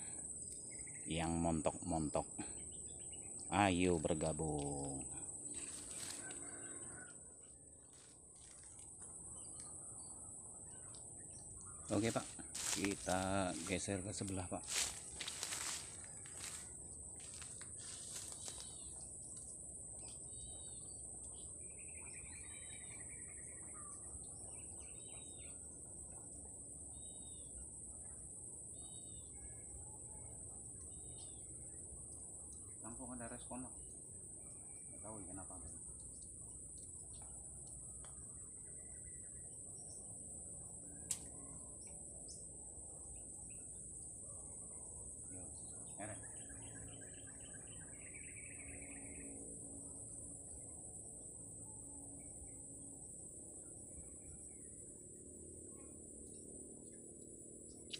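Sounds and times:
high-pitched insect buzz: 0.0 - 29.6.

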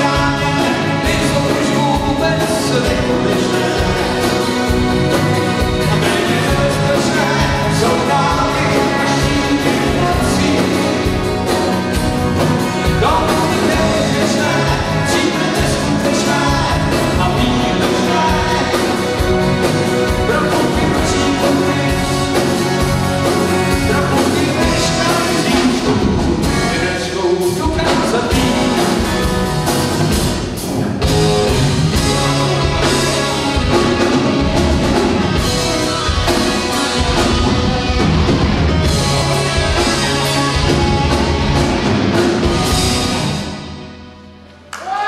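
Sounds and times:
person singing: 0.0 - 5.2, 5.8 - 11.6, 12.8 - 22.8, 23.4 - 29.0
steady drum beat: 0.0 - 43.6
bass guitar: 0.0 - 45.0.

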